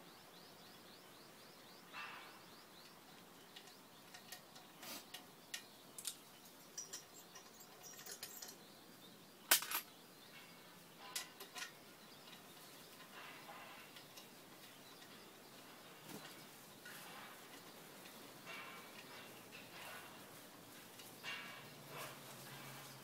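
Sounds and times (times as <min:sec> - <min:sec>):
metallic clicks and taps on engine: 0:02.8 - 0:08.7.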